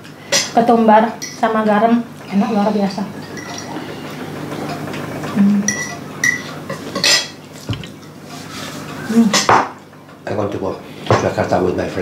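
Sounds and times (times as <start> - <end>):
cutlery clinking on plates: 3.2 - 3.8, 4.5 - 8.2, 9.3 - 9.8.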